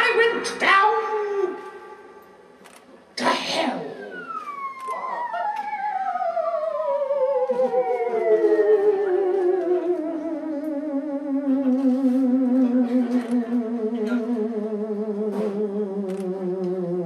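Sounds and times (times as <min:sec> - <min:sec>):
theremin note sliding down: 0:04.0 - 0:17.0.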